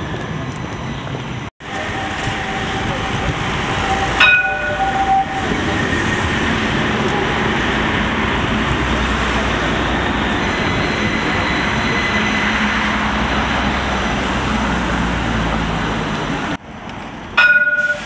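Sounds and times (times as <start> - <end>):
tram passing close by: 0.0 - 18.0
loud pitched tone: 1.6 - 8.0.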